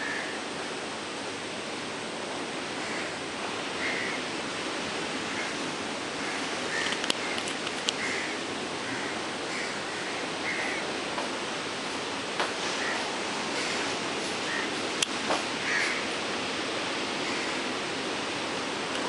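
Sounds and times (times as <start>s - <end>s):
sea surf rushing: 0.0s - 19.0s
wind: 0.0s - 19.0s
sharp clicks: 6.8s - 8.0s
bird calling: 8.0s - 10.9s, 12.8s - 14.8s.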